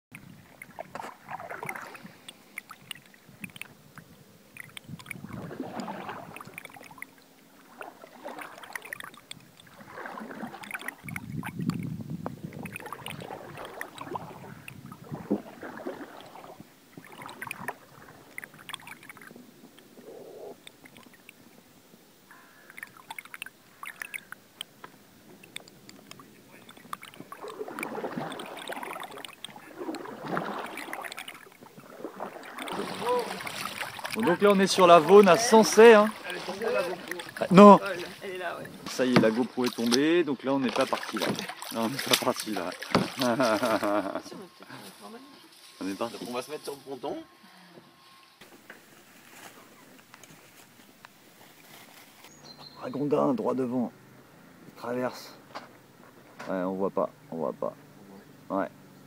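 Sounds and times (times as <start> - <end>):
water sloshing around canoe: 0.1 - 52.8.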